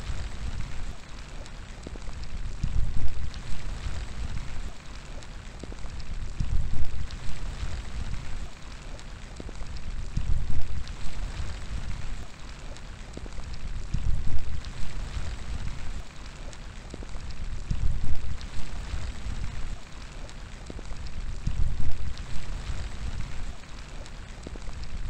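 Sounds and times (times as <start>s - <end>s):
low rumbling wind gusts: 0.0s - 25.0s
steady rain falling: 0.0s - 25.0s.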